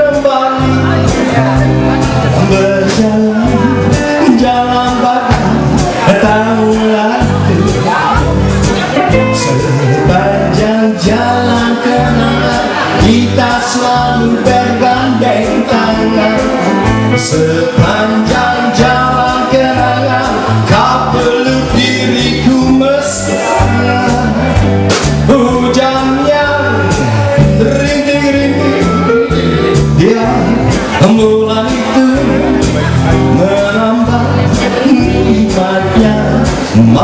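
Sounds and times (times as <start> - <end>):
live band music: 0.0 - 37.0
man singing lead: 0.0 - 37.0.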